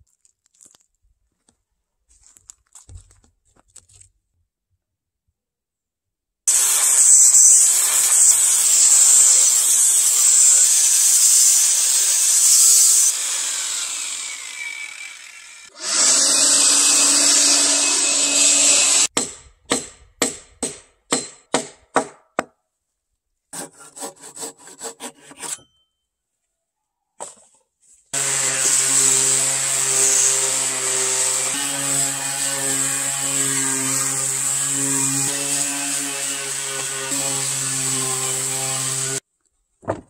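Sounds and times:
angle grinder grinding wood: 6.5 - 19.1, 28.2 - 39.2.

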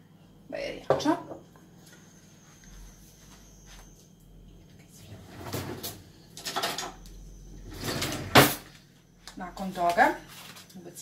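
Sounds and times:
faint steady high whine: 0.0 - 11.0
kitchen knocks and clatters: 0.9 - 1.4, 5.5 - 7.0.

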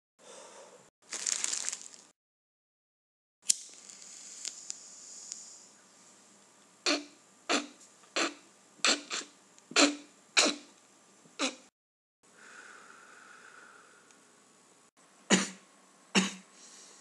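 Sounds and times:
lighter flicked: 3.4 - 5.4
soft lighter hiss: 3.5 - 5.8
man coughing: 15.3 - 15.6, 16.2 - 16.5.

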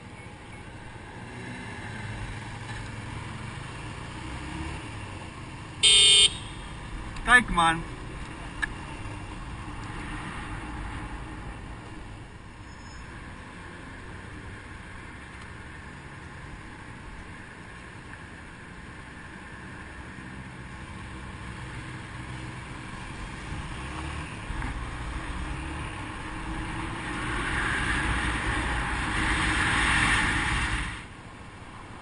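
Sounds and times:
wind rushing over microphone: 23.0 - 31.1.

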